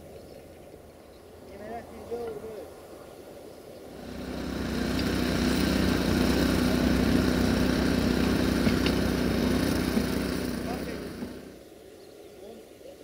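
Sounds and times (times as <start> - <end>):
diesel train engine running: 3.9 - 11.6.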